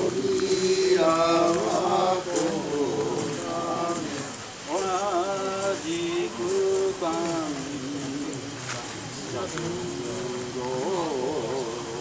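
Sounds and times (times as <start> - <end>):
men chanting in long notes: 0.0 - 12.0.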